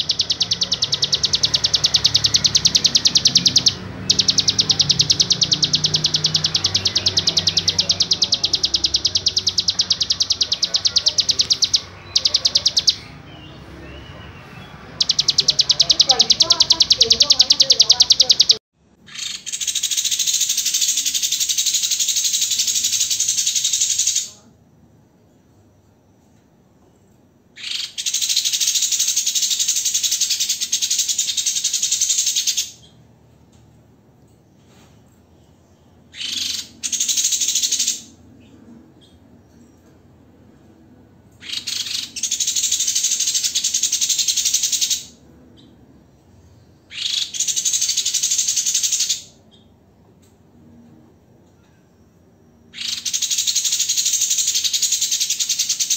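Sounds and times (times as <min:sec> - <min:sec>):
higher buzzing bird trill: 0:00.0 - 0:13.0, 0:15.0 - 0:24.3
caged songbirds trilling: 0:00.0 - 0:55.9.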